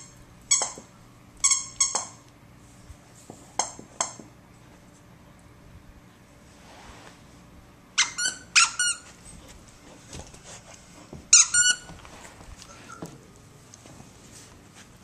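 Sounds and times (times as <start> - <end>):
squeaky toy squeaking: 8.0 - 9.0, 11.3 - 11.9.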